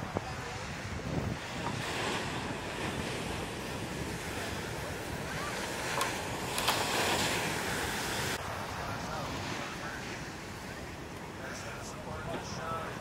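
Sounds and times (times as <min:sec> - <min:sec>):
waves breaking on beach: 0:00.0 - 0:13.0
wave crashing onto sand: 0:01.4 - 0:10.3.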